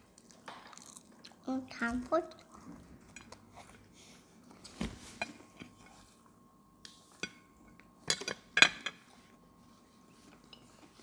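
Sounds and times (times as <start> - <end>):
cutlery clinking on a plate: 7.1 - 9.1.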